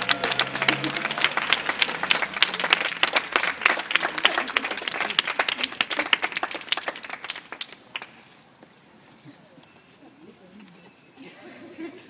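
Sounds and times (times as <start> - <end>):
small group applauding: 0.0 - 8.2.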